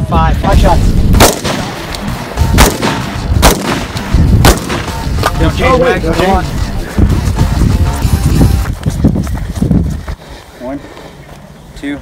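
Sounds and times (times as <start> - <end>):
rifle shots: 1.2 - 1.9, 2.5 - 5.1.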